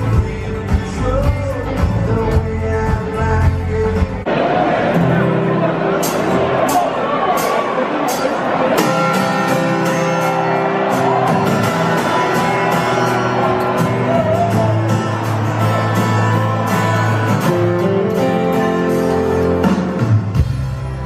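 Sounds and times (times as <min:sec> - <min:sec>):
man singing: 0:00.0 - 0:04.3
strummed acoustic guitar: 0:00.0 - 0:21.0.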